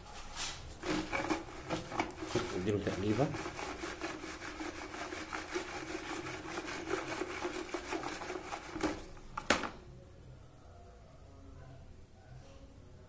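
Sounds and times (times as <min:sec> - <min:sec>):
stick scraping inside plastic bucket: 0:00.7 - 0:09.5.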